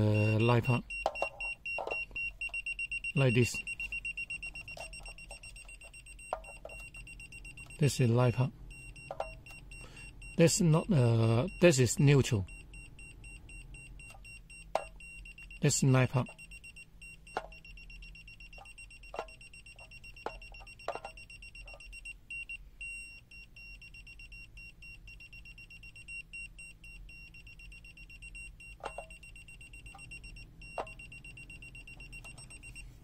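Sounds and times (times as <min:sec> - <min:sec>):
high-pitched alarm tone: 0:00.0 - 0:22.1.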